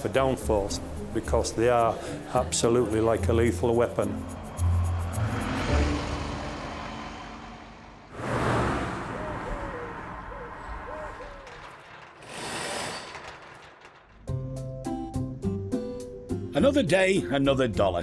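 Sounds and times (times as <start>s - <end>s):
bus driving past: 2.9s - 12.6s
rushes of noise: 4.1s - 14.1s.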